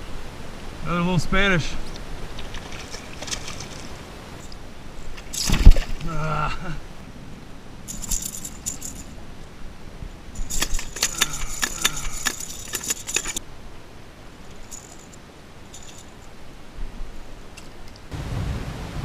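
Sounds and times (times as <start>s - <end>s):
fishing lure rattling: 2.4s - 6.0s, 7.9s - 9.2s, 10.4s - 13.4s, 14.4s - 16.3s, 17.5s - 18.1s.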